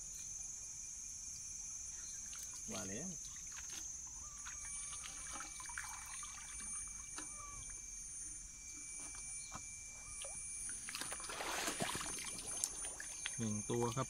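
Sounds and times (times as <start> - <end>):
insects droning: 0.0 - 14.0
muddy water splashing: 2.2 - 7.8, 10.1 - 14.0.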